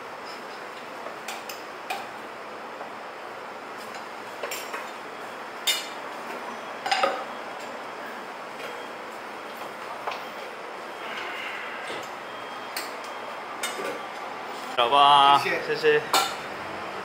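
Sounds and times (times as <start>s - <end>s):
room noise: 4.8s - 17.0s
dishes and utensils clinking: 6.8s - 7.2s.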